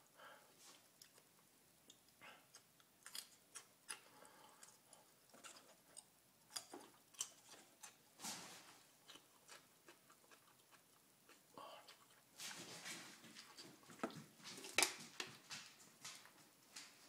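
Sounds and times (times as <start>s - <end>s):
person chewing raw garlic: 0.9s - 8.0s, 8.9s - 12.3s.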